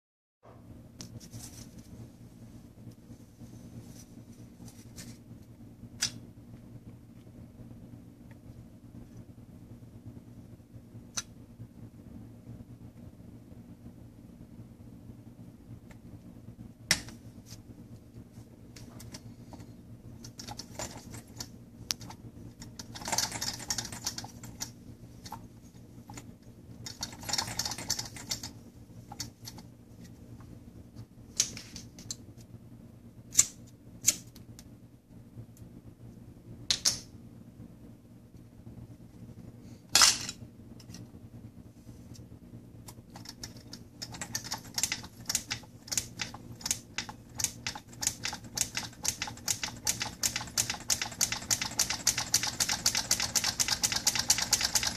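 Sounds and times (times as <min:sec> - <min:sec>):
small engine ticking quickly: 0:47.4 - 0:54.9.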